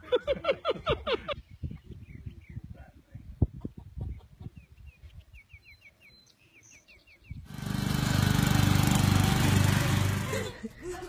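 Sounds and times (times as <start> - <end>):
bird chirping: 4.0 - 7.5
small engine running: 7.5 - 10.6.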